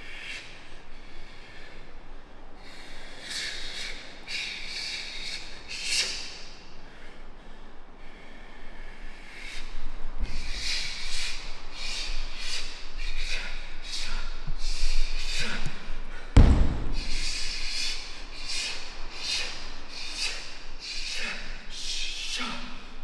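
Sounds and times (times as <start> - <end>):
heavy thud: 16.4 - 17.7
short sharp hissing: 16.4 - 21.4.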